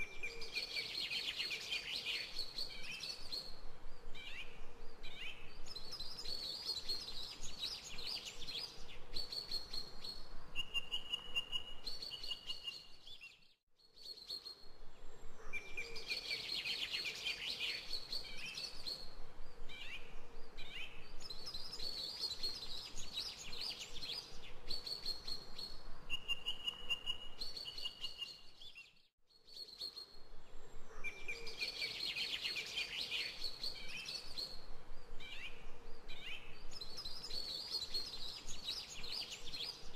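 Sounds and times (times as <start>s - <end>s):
birds chirping and trilling: 0.0s - 39.9s.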